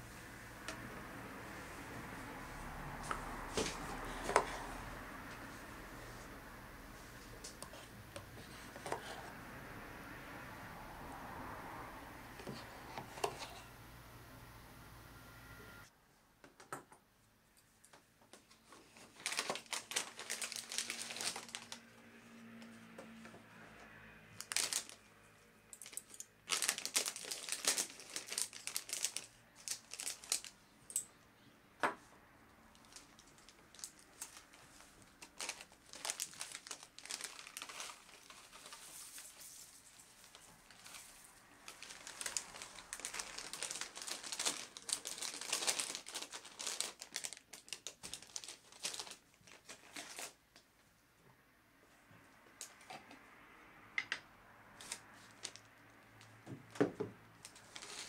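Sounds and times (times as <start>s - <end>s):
plastic bag crinkling: 18.8s - 21.9s, 24.4s - 25.0s, 25.8s - 30.6s, 32.8s - 50.4s, 57.4s - 58.0s.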